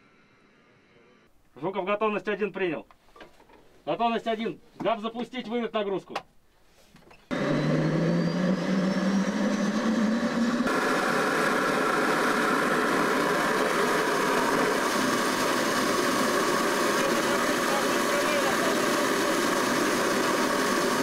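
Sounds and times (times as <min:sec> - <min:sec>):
power unit whining: 0:07.3 - 0:21.0.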